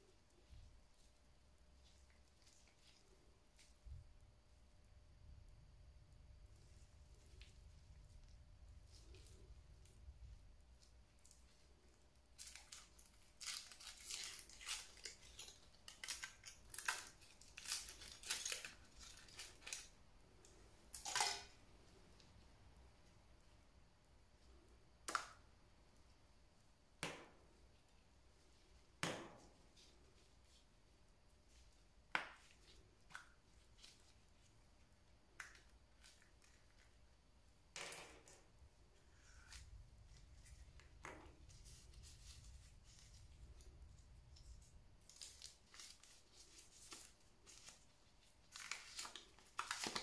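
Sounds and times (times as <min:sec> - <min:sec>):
foil wrapper crinkling and tearing: 0:12.3 - 0:19.9, 0:44.6 - 0:50.0.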